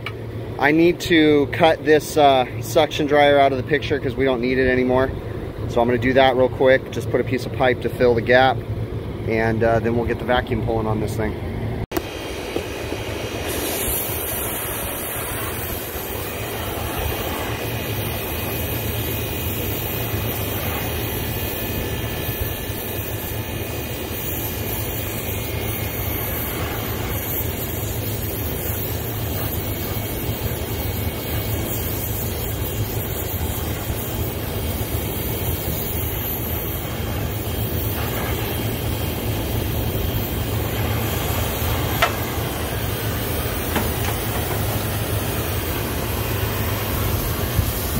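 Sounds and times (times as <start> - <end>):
low steady hum: 0.0 - 47.9
torch flame rushing: 11.4 - 47.9.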